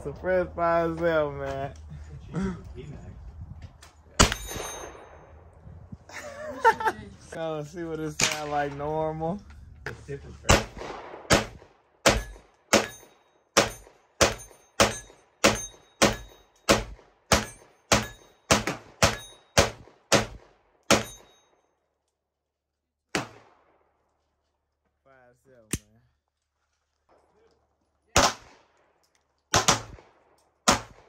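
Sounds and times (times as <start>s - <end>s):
gunshots with echo: 10.5s - 13.0s, 28.2s - 28.7s, 29.5s - 31.0s.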